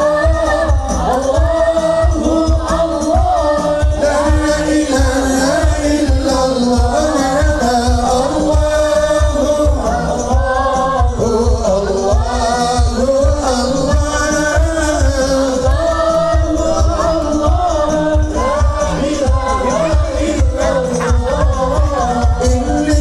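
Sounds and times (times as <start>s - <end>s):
group of voices chanting a melody: 0.0s - 23.0s
steady drum beat: 0.0s - 23.0s.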